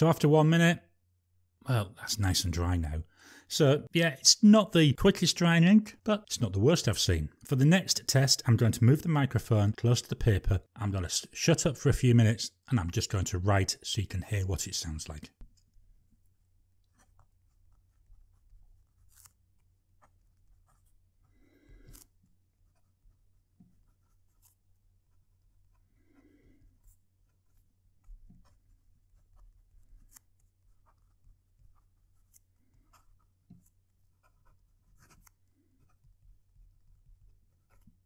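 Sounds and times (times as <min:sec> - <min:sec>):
pen scratching on paper: 0:16.8 - 0:38.0.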